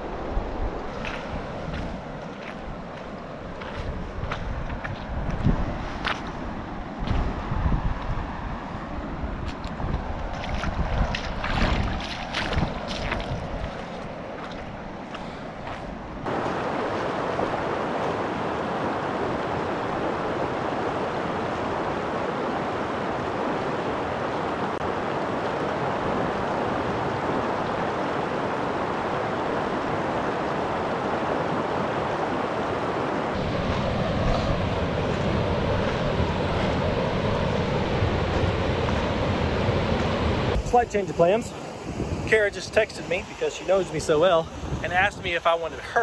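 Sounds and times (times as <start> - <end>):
river water rushing over rocks: 11.3 - 42.4.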